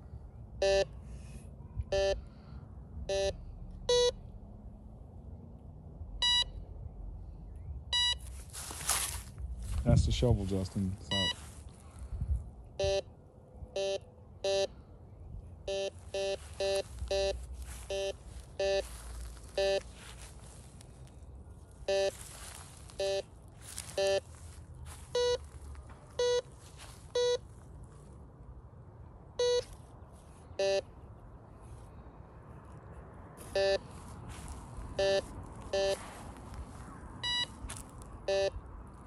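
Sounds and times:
metal detector beeps: 0:00.6 - 0:01.0, 0:01.9 - 0:02.2, 0:03.1 - 0:04.2, 0:06.2 - 0:06.6, 0:07.9 - 0:08.4, 0:11.1 - 0:11.4, 0:12.8 - 0:13.1, 0:13.8 - 0:14.7, 0:15.7 - 0:18.9, 0:19.5 - 0:19.9, 0:21.9 - 0:22.2, 0:23.0 - 0:23.3, 0:23.9 - 0:24.3, 0:25.1 - 0:25.4, 0:26.2 - 0:26.5, 0:27.1 - 0:27.4, 0:29.4 - 0:29.8, 0:30.5 - 0:30.9, 0:33.5 - 0:33.9, 0:35.0 - 0:36.0, 0:37.2 - 0:37.6, 0:38.2 - 0:38.6.

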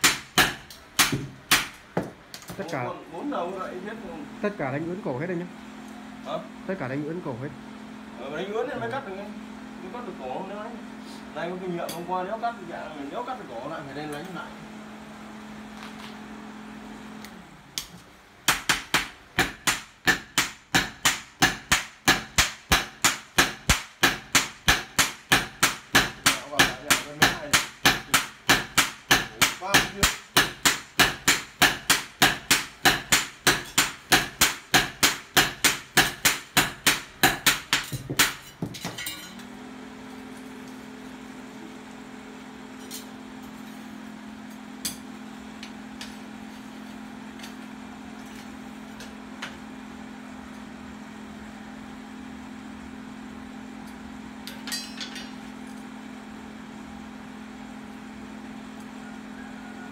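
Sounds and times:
hammers striking steel on anvil: 0:00.0 - 0:02.1, 0:18.5 - 0:39.4, 0:54.4 - 0:55.4.

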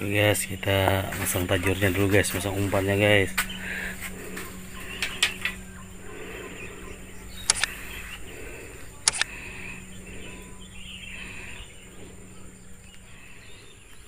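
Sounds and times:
birds chirping: 0:00.0 - 0:14.0
steady low hum: 0:00.0 - 0:14.0
sharp double click: 0:07.4 - 0:07.8, 0:09.1 - 0:09.3.

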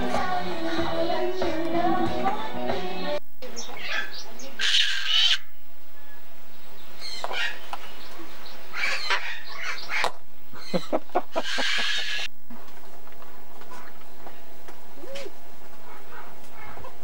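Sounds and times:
cockatoo squawking: 0:03.7 - 0:06.1, 0:07.0 - 0:07.7, 0:08.7 - 0:12.3.

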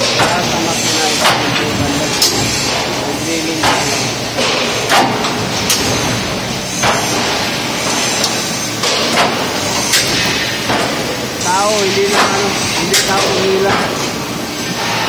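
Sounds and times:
heavy metal clanks and thuds: 0:00.0 - 0:11.1
punching machine running: 0:00.0 - 0:15.0.

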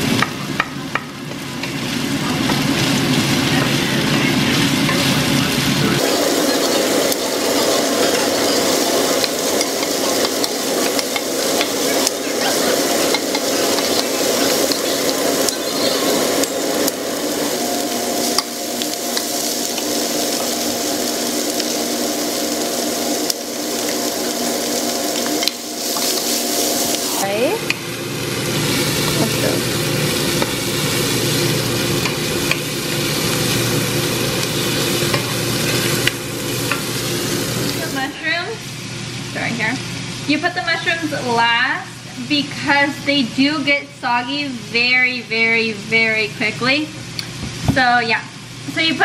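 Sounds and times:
food sizzling in skillet: 0:00.0 - 0:49.0.

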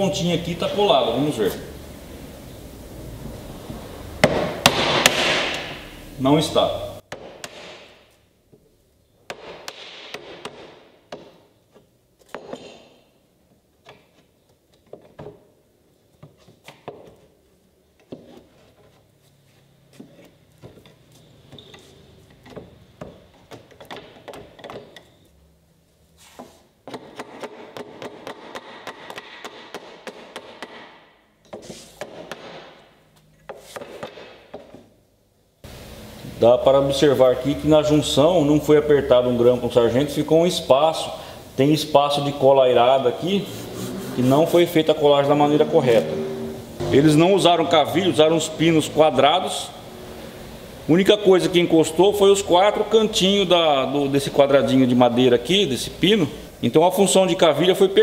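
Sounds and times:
wood knocks and creaks: 0:20.0 - 0:25.2.

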